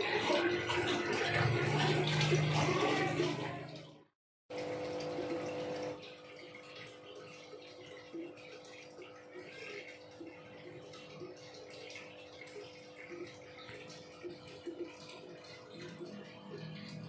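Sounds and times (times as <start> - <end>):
aquarium air bubbling: 0.0 - 3.9, 4.5 - 7.1.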